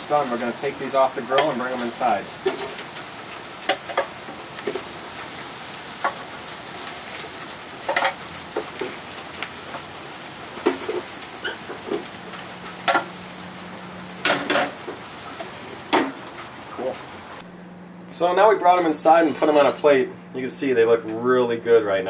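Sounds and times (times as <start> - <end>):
ribs sizzling on grill: 0.0 - 17.4.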